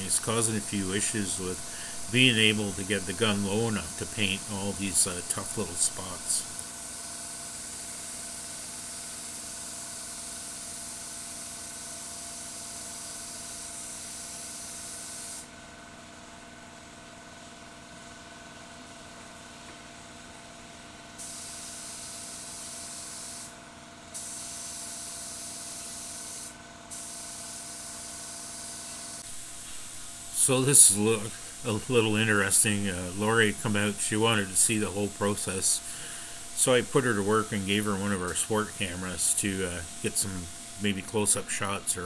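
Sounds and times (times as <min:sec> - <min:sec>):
steady hum: 0:00.0 - 0:06.8, 0:28.8 - 0:42.0
paint spray gun hissing: 0:00.0 - 0:10.9, 0:21.2 - 0:23.5, 0:24.1 - 0:41.8.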